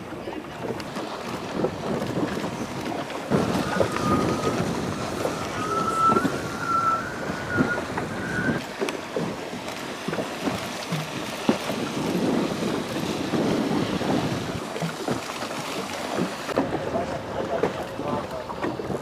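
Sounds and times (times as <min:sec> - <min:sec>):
choppy water: 0:00.0 - 0:19.0
wind buffeting microphone: 0:00.0 - 0:19.0
thin whistling tone: 0:03.4 - 0:08.6.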